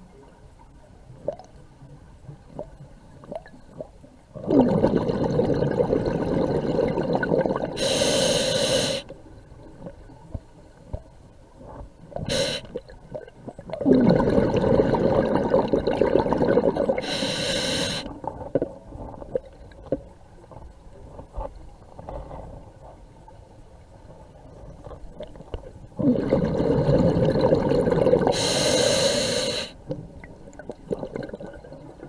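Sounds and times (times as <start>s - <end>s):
regulator breath hissing: 7.8s - 9.1s, 12.3s - 12.7s, 17.0s - 18.2s, 28.3s - 29.8s.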